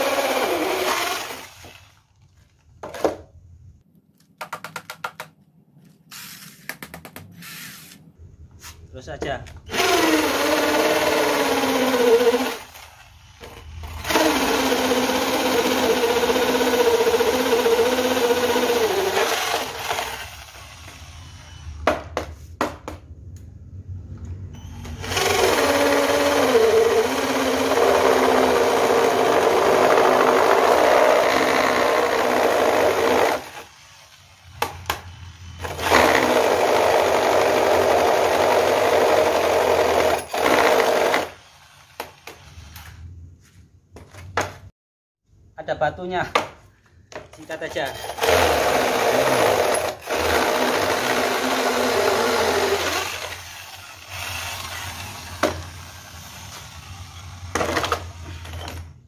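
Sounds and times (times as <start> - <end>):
drill bit grinding into brick: 0.0 - 2.0, 9.7 - 21.6, 24.8 - 34.0, 35.6 - 42.9, 47.8 - 58.9
electric drill whining: 0.0 - 2.0, 9.7 - 21.8, 24.6 - 34.5, 47.8 - 58.9.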